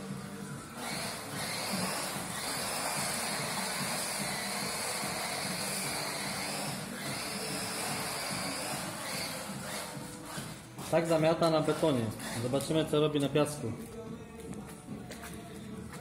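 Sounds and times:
electric motor whine: 0:00.1 - 0:10.3.

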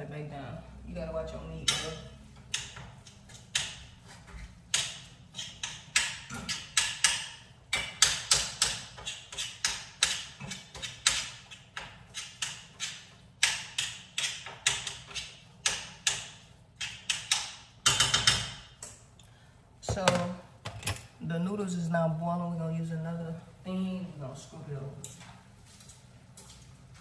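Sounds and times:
utensil chopping meat in a pan: 0:04.6 - 0:18.7.

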